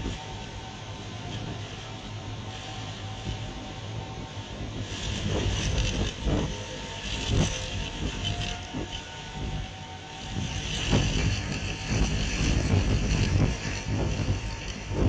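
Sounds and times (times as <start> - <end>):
violent storm wind buffeting: 0.0 - 15.0
wind thumps on microphone: 4.6 - 9.7, 10.3 - 15.0.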